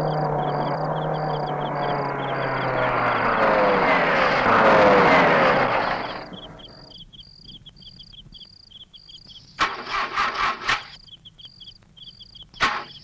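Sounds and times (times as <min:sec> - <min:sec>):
crickets chirping: 0:00.0 - 0:05.0, 0:05.6 - 0:09.6, 0:10.4 - 0:13.0
engine starter cranking: 0:09.6 - 0:11.0.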